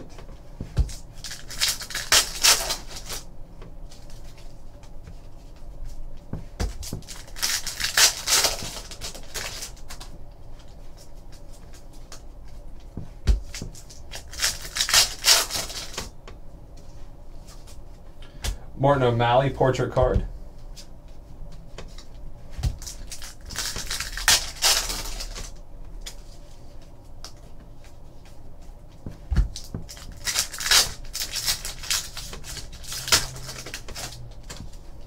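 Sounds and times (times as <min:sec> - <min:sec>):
foil wrappers crinkling and tearing: 0:00.9 - 0:03.3, 0:06.8 - 0:12.2, 0:13.5 - 0:16.2, 0:22.8 - 0:26.4, 0:29.5 - 0:34.6.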